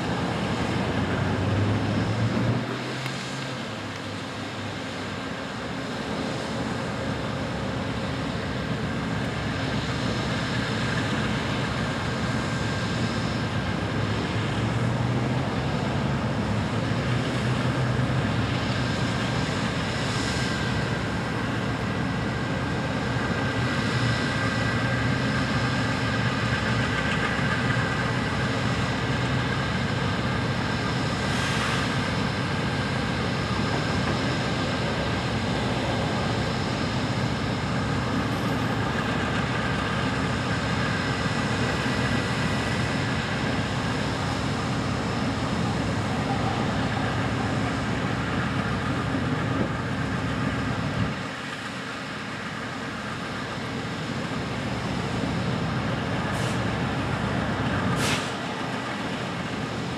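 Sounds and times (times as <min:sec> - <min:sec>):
train engine droning: 0:00.0 - 0:59.9
brief hisses: 0:57.9 - 0:58.5.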